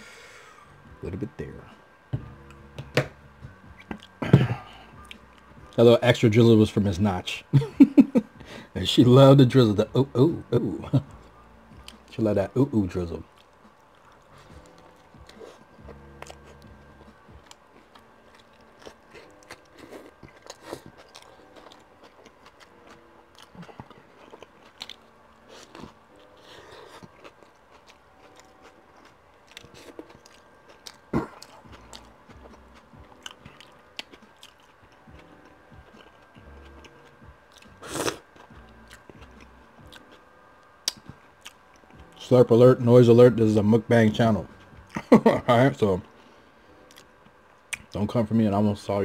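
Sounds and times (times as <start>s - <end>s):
person chewing sandwich: 13.3s - 42.2s, 46.8s - 48.0s.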